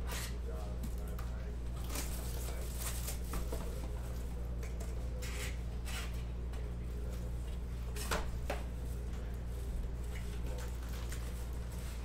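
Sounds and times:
steady low hum: 0.0 - 12.0
shrink-wrap crinkling: 1.8 - 3.4, 10.0 - 12.0.

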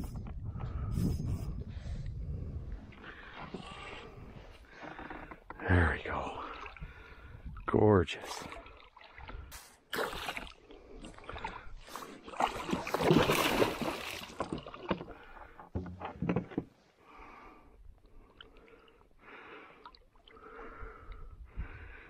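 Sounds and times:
water splashing against kayak: 2.9 - 16.8
water sloshing and knocks: 12.3 - 16.8.

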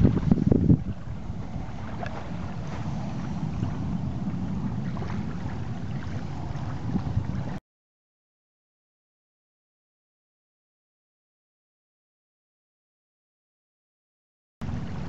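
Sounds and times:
wind buffeting microphone: 0.0 - 7.6, 14.6 - 15.0.

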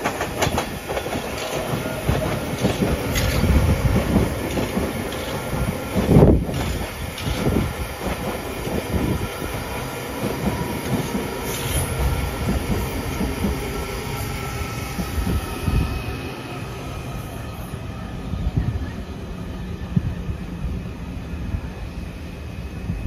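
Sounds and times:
wheel clicks over rail joints: 0.0 - 8.8
train rolling on track: 0.0 - 23.0.

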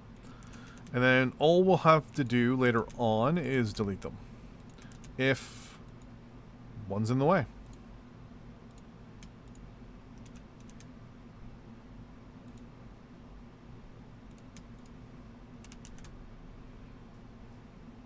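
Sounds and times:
faint low hum: 0.0 - 18.0
computer mouse clicking: 0.2 - 1.0, 4.6 - 5.2, 8.7 - 10.9, 12.4 - 12.7, 14.3 - 15.0, 15.6 - 16.1.

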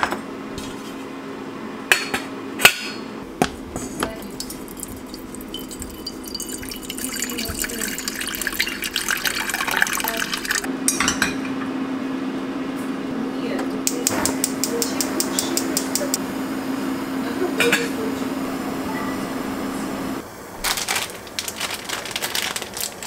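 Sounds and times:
water running into saucepan: 3.8 - 10.7
saucepan clinking: 4.2 - 11.2.

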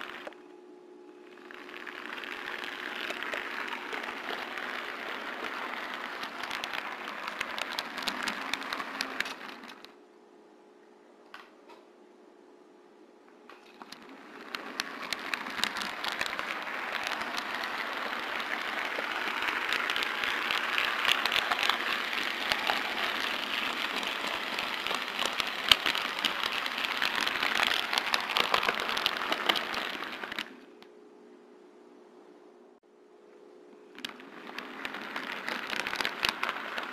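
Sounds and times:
model train wheels rattling on rails: 0.0 - 0.4, 1.3 - 9.9, 13.6 - 30.6, 34.0 - 36.9.

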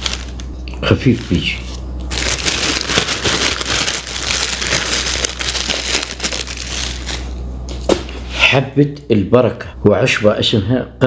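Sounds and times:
dried herbs crinkling: 0.0 - 7.4.

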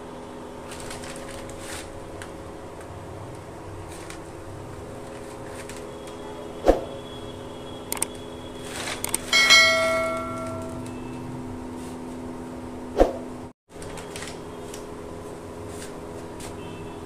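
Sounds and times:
clicks: 7.9 - 8.1
bright bell chime: 9.3 - 10.8.

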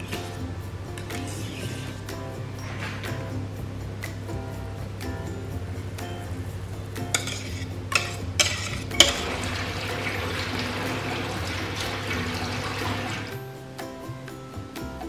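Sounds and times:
cream pouring: 9.0 - 13.3.

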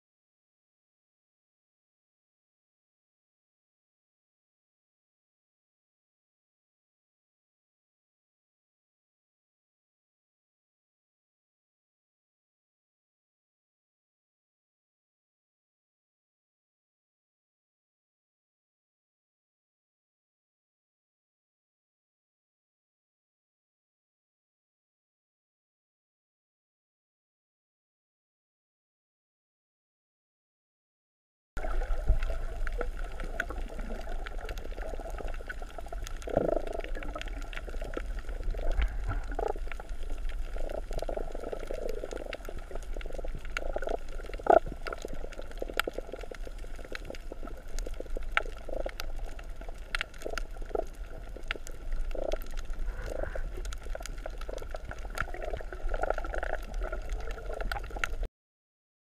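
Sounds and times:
sharp clicks and crackles: 31.6 - 58.3
swells of water noise: 31.6 - 58.3
underwater low rumble: 31.6 - 58.3.

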